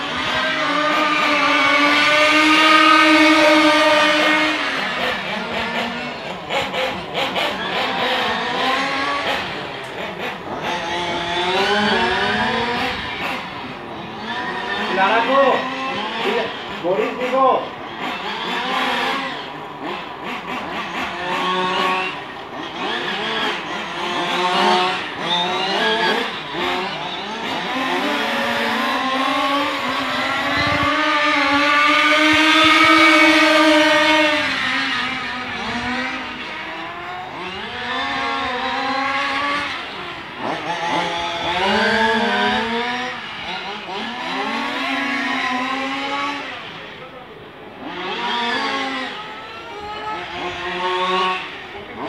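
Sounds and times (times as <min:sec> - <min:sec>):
race car engines revving: 0:00.0 - 0:52.0
race car passing close: 0:00.0 - 0:52.0.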